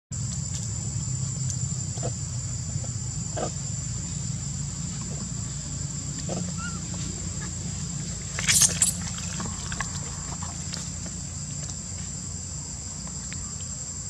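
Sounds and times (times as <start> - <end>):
high-pitched insect drone: 0.2 - 14.0.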